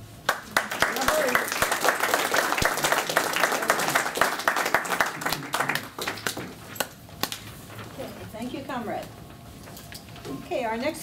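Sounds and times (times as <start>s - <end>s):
audience applauding: 0.2s - 6.6s.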